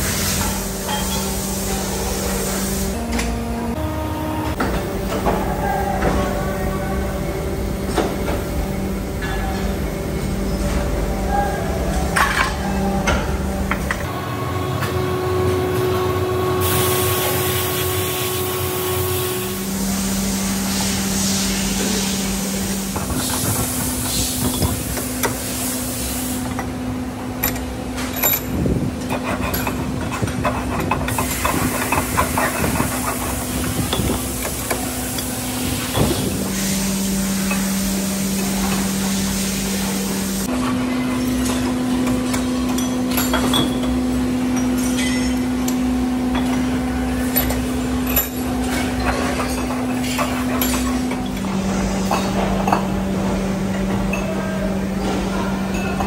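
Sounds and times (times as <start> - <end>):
machine hum: 0.0 - 56.0
hand file scraping metal: 29.1 - 33.7.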